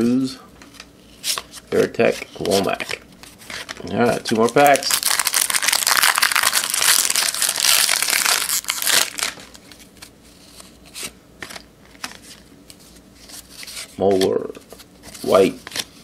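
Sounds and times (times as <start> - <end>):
foil wrapper tearing and crinkling: 4.3 - 9.6.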